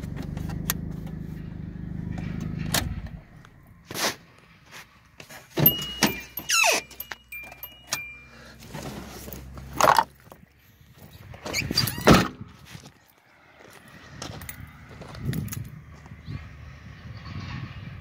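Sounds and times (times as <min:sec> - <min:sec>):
car keys jangling: 0:05.5 - 0:10.4
short high tones: 0:05.6 - 0:08.8.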